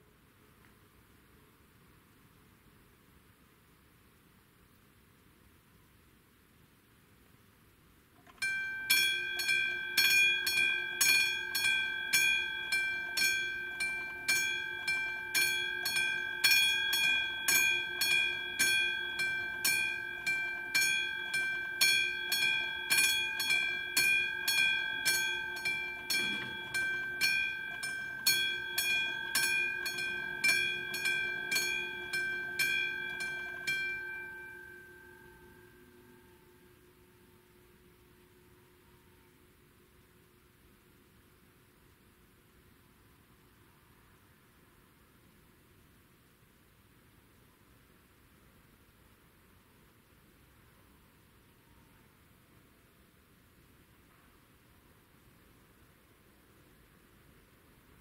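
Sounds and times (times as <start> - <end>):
electronic level crossing bell ringing: 8.2 - 39.1.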